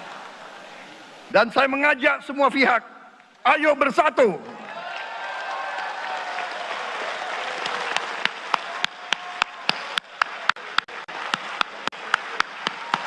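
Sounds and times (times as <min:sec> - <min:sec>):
audience applauding: 0:04.5 - 0:13.0
rhythmic clapping in unison: 0:06.1 - 0:13.0.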